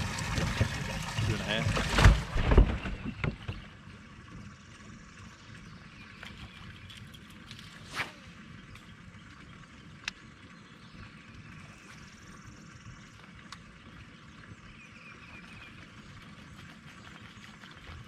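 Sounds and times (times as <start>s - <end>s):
open water ambience: 0.0s - 18.0s
brief swish: 7.8s - 8.4s.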